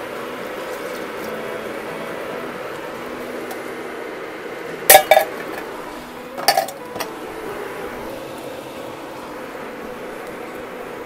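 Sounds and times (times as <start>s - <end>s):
steady low background noise: 0.0s - 11.0s
metal utensils clinking on cookware: 4.9s - 5.7s, 6.4s - 7.1s.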